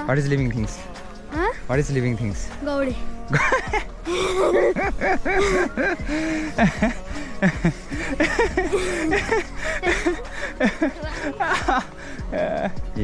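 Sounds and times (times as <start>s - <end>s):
young children chattering and giggling: 3.3s - 12.8s.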